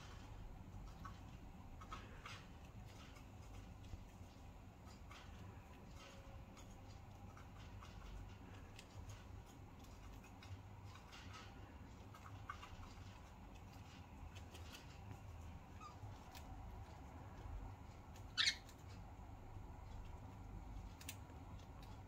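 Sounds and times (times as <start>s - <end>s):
budgie chirp: 18.3s - 18.8s.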